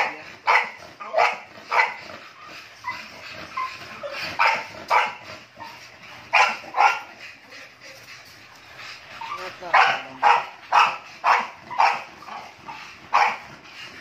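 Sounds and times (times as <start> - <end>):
dog barking: 0.0 - 2.0, 4.4 - 5.2, 6.3 - 7.2, 9.6 - 12.5, 13.1 - 13.4.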